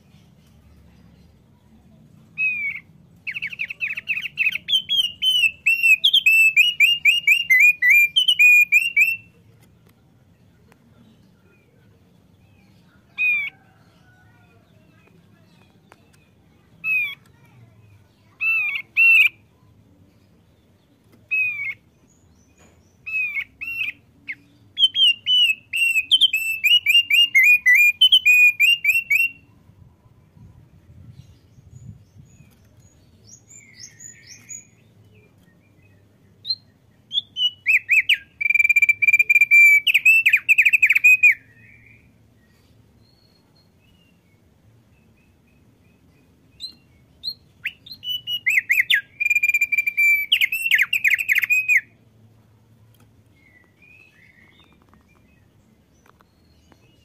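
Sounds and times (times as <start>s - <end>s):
bird singing chirped notes: 2.4s - 9.4s, 15.0s - 29.6s, 31.5s - 52.0s
steady bird whistle: 4.4s - 9.3s, 24.8s - 29.4s, 36.4s - 41.8s, 46.6s - 51.9s.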